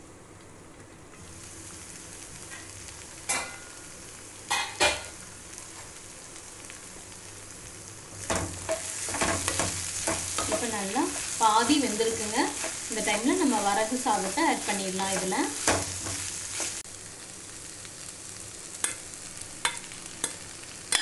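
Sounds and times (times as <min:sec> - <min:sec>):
vegetables sizzling in a pan: 0:01.2 - 0:21.0
spatula scraping a pan: 0:12.2 - 0:13.0, 0:14.6 - 0:16.8.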